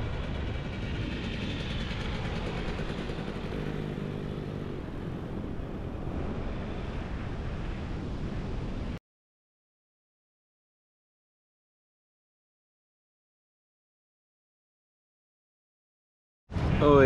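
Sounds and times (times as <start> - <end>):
dirt bike engine running: 0.0 - 5.8
steady rushing noise: 0.0 - 9.0, 16.5 - 17.0.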